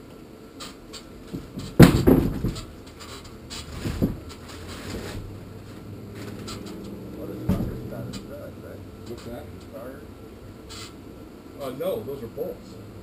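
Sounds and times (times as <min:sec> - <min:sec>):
hatch panel bumps and scrapes: 0:00.6 - 0:08.3
hatch panel knock: 0:01.3 - 0:02.7, 0:07.5 - 0:07.8.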